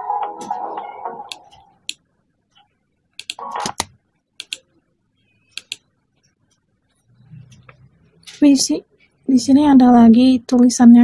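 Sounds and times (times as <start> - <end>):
computer mouse clicking: 3.2 - 4.7, 5.5 - 5.9.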